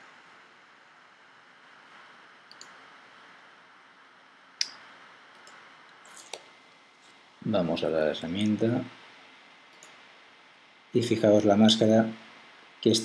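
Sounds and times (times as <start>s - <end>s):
faint steady hiss: 0.0s - 13.0s
computer mouse clicking: 2.5s - 2.8s, 4.6s - 6.5s, 9.7s - 10.0s.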